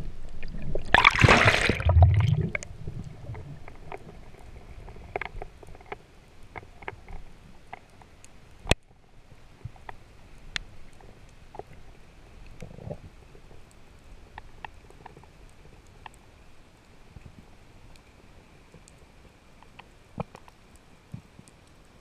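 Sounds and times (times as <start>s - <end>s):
underwater water rush and bubbles: 0.0s - 5.5s
faint crackling clicks: 2.5s - 22.0s.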